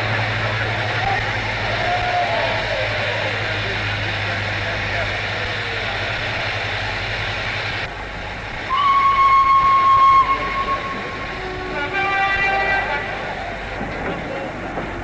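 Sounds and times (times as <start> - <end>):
steam train noise: 0.0 - 15.0
locomotive whistle: 8.7 - 13.7.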